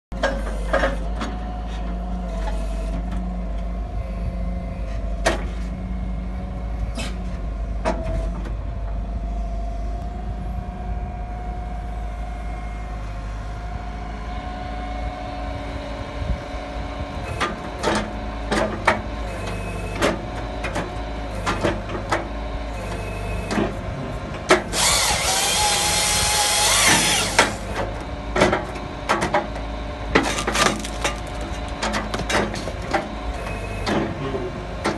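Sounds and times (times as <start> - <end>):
diesel engine running: 0.1 - 34.9
hydraulic whine: 24.5 - 28.5.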